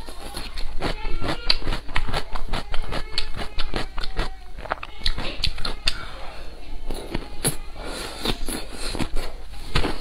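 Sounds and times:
chewing and lip smacking: 0:00.1 - 0:06.0.

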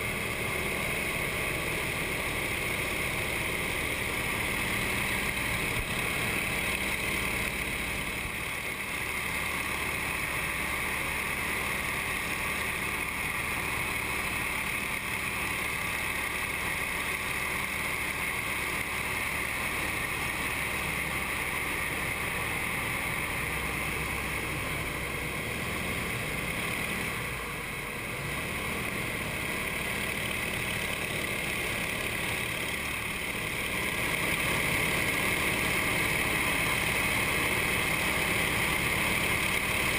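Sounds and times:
radial aircraft engine droning: 0:00.0 - 0:39.9.

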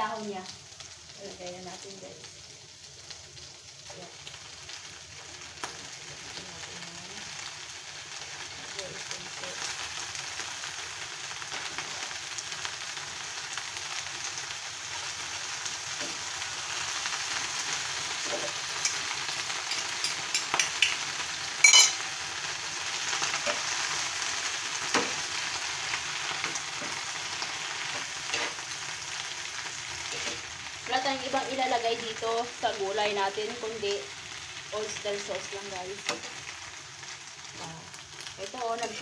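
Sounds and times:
leaves sizzling in frying pan: 0:00.0 - 0:39.0
spatula scraping pan: 0:27.9 - 0:28.7, 0:30.0 - 0:30.5.

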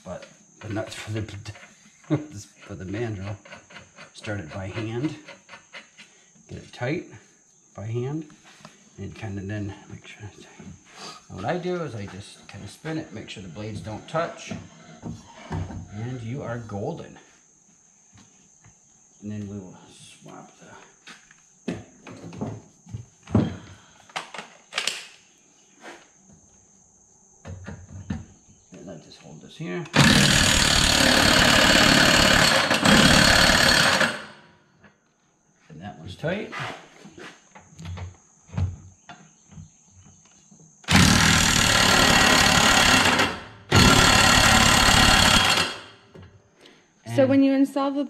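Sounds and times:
impact tool rapid hammering: 0:30.0 - 0:34.3, 0:40.9 - 0:45.9.

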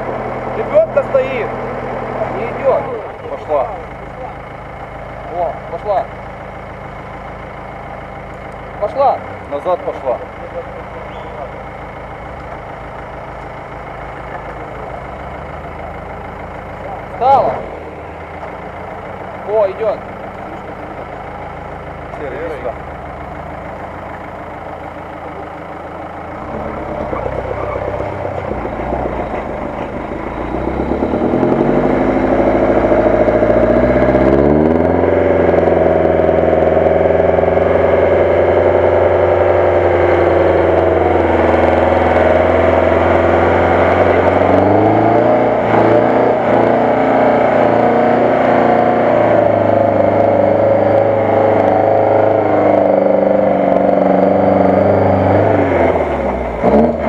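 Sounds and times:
jeep engine revving hard: 0:00.0 - 0:04.3, 0:26.3 - 0:57.0.

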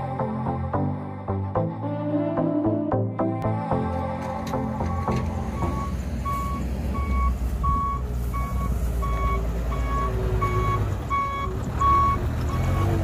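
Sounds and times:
truck engine rumbling: 0:00.0 - 0:13.0
truck reversing alarm beeping: 0:04.6 - 0:13.0.

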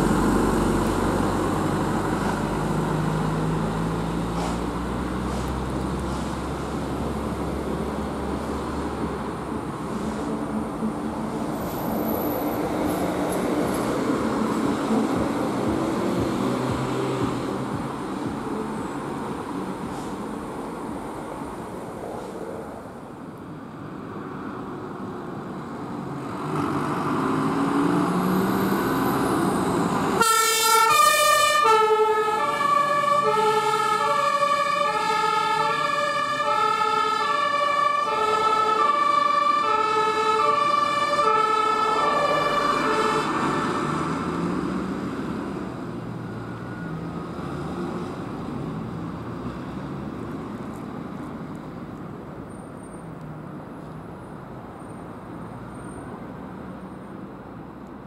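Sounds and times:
emergency vehicle passing: 0:26.6 - 0:49.4
two-tone siren: 0:30.2 - 0:43.9.

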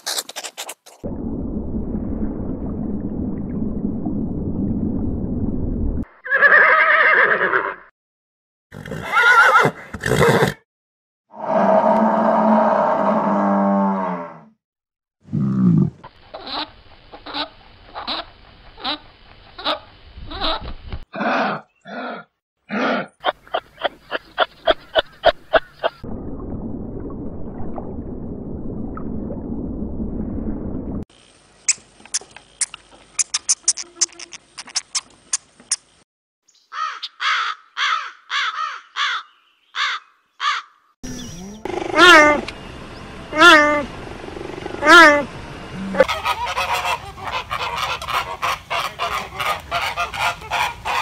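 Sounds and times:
clicking and chirping calls: 0:31.6 - 0:36.0
fast high-pitched clicking: 0:31.7 - 0:35.8
crow cawing: 0:36.7 - 0:40.8
drawn-out animal call: 0:39.8 - 0:42.5, 0:43.3 - 0:51.0.

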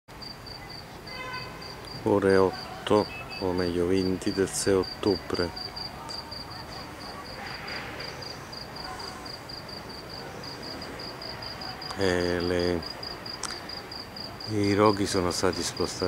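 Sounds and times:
cricket chirping: 0:00.1 - 0:16.0
man's voice: 0:02.0 - 0:05.6, 0:14.5 - 0:16.0.

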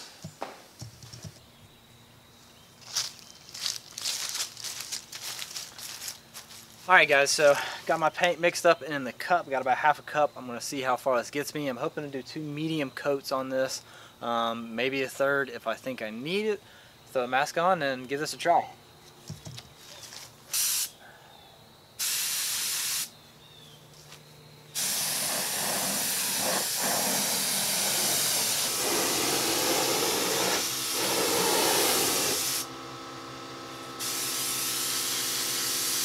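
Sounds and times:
paint spray gun hissing: 0:20.5 - 0:21.0, 0:22.0 - 0:23.1, 0:24.8 - 0:32.7, 0:33.7 - 0:36.0.

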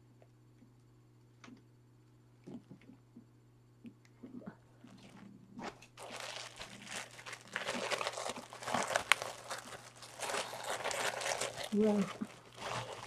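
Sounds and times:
plastic bag crinkling: 0:05.9 - 0:13.0.

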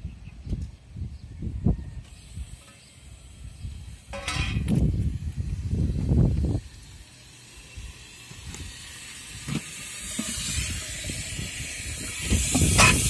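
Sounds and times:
water hissing through float valve: 0:06.5 - 0:13.0.

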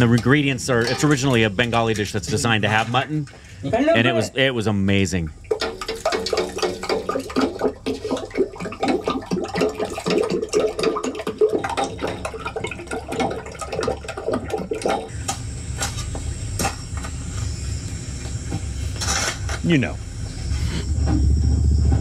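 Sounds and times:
low rumble: 0:20.0 - 0:22.0.

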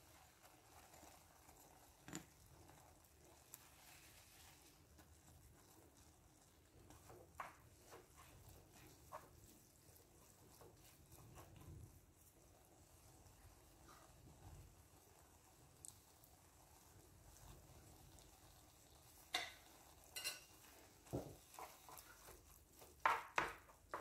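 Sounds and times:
noodles squishing in water: 0:00.0 - 0:24.0
wooden spoon tapping a pan: 0:06.9 - 0:09.2, 0:19.2 - 0:24.0.

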